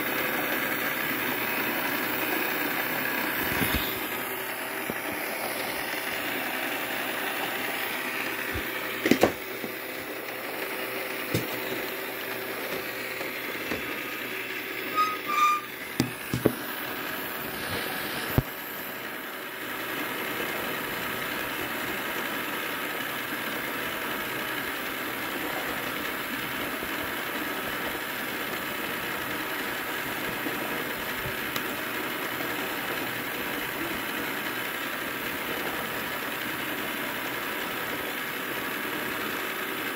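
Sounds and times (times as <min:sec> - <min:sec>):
toy gears whirring: 0:01.9 - 0:04.3, 0:14.0 - 0:16.1.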